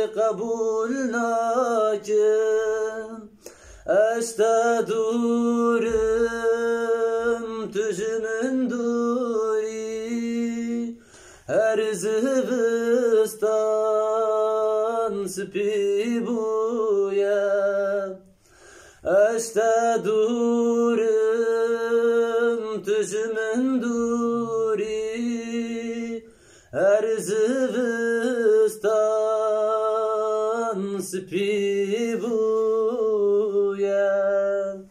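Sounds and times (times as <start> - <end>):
man singing unaccompanied: 0.0 - 34.9.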